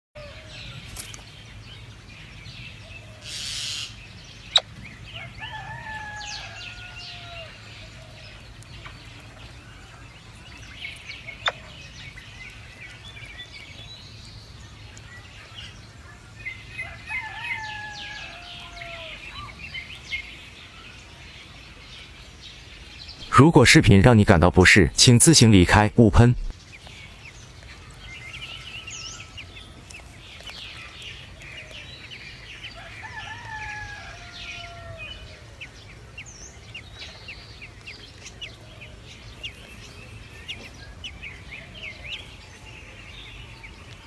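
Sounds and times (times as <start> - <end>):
birds twittering: 0.2 - 44.0
rooster crowing: 5.1 - 7.6, 16.8 - 19.4, 32.7 - 35.6.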